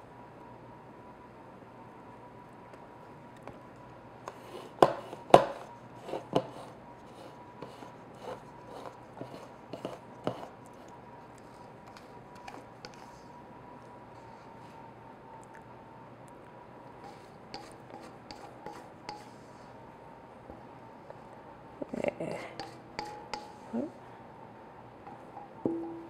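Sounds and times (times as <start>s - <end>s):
spatula scraping metal bowl: 4.3s - 13.3s, 17.0s - 19.7s, 22.6s - 23.7s.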